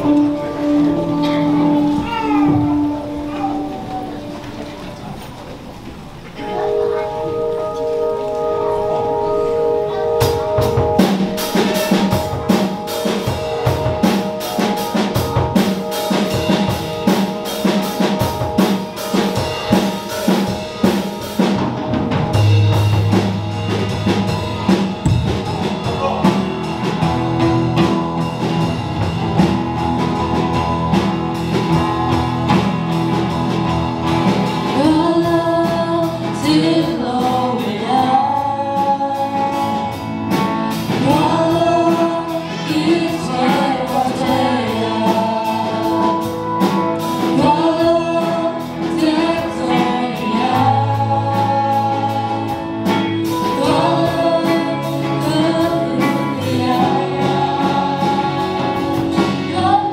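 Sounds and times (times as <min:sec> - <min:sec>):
drum kit beat: 0:00.0 - 0:04.6, 0:09.6 - 0:59.9
guitar: 0:00.0 - 0:59.9
keyboard: 0:00.0 - 0:59.9
group of people singing: 0:34.7 - 0:39.8, 0:40.9 - 0:46.4, 0:47.2 - 0:59.9.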